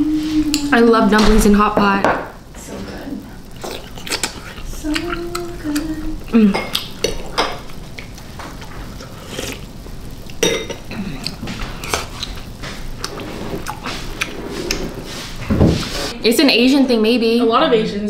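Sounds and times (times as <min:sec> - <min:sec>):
chewing: 0:03.5 - 0:15.0.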